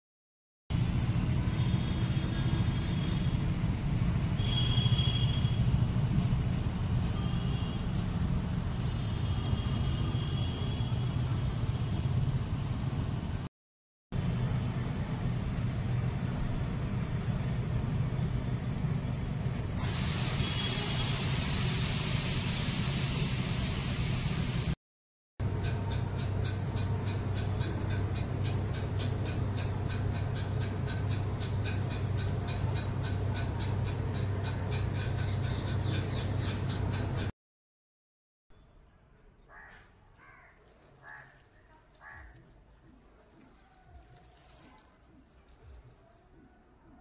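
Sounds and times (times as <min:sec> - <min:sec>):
low outdoor rumble: 0:00.7 - 0:09.4, 0:10.2 - 0:13.5, 0:14.2 - 0:19.8
hiss: 0:19.8 - 0:24.8.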